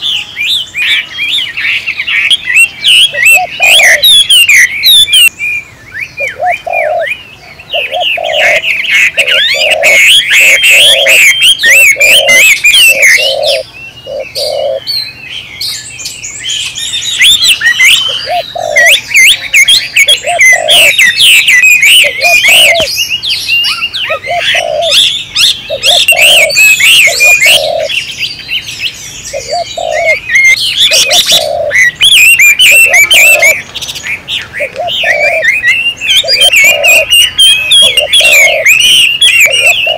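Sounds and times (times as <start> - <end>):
small birds chirping: 0.0 - 39.9
dove cooing: 2.1 - 5.3, 6.2 - 14.9, 17.0 - 22.9, 23.6 - 28.0, 29.3 - 33.6, 34.6 - 39.9.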